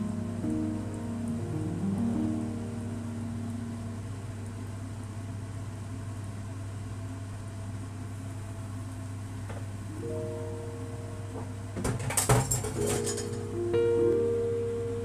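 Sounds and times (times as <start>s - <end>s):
faint hiss: 0.0s - 11.6s
low electrical hum: 0.0s - 15.0s.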